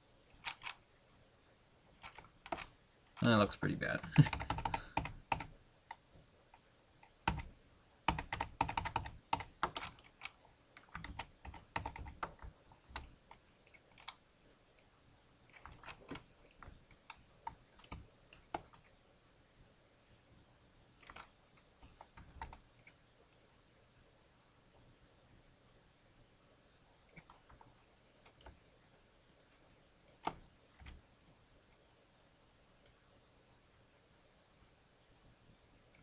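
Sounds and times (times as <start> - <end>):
computer keyboard typing: 0.3 - 0.8, 1.9 - 2.7, 4.0 - 6.0, 7.0 - 7.5, 8.1 - 14.2, 15.5 - 18.9, 21.0 - 23.0, 27.1 - 33.0.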